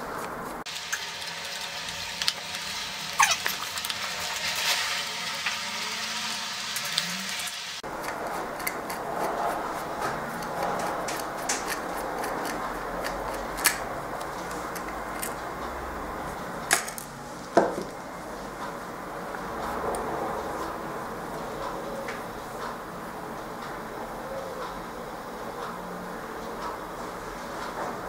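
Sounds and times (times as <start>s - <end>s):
short squeak: 3.2s - 3.6s
screwdriver clicking in screws: 8.0s - 9.4s, 10.3s - 15.4s.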